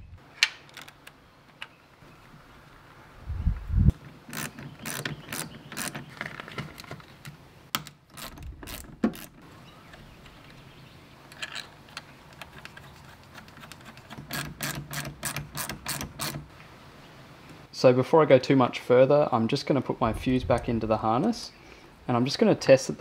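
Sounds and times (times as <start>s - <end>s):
ratchet wrench clicking: 4.3s - 6.0s, 14.3s - 16.4s.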